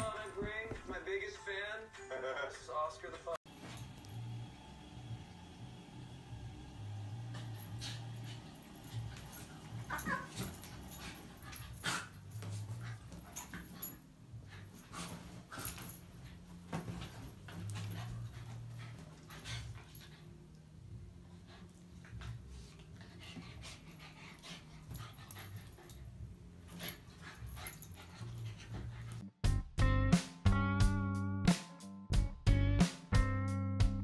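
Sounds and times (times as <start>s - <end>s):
paws scuffling on bedding: 7.4s - 19.9s.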